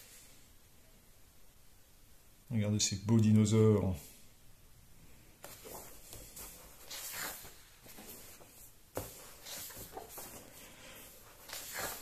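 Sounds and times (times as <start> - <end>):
pages turning: 5.4 - 12.0.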